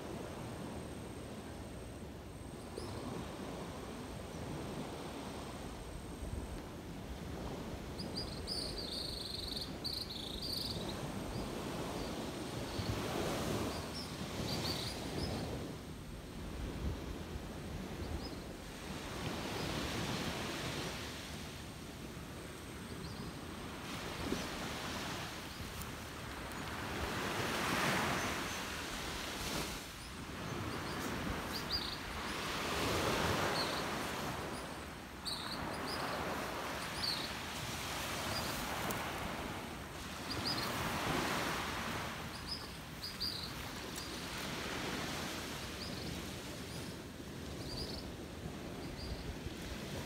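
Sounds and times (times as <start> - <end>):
surf washing onto beach: 0.0 - 1.6, 11.0 - 47.2.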